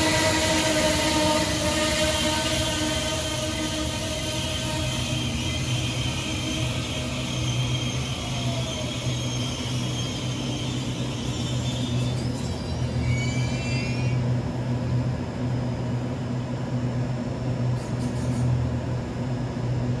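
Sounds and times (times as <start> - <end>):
train braking whine: 0.0 - 14.4
train low hum: 0.0 - 20.0.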